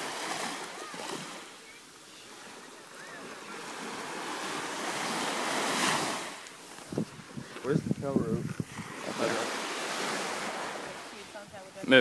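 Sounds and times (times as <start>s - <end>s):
ocean surf washing ashore: 0.0s - 12.0s
wind buffeting microphone: 6.7s - 11.8s.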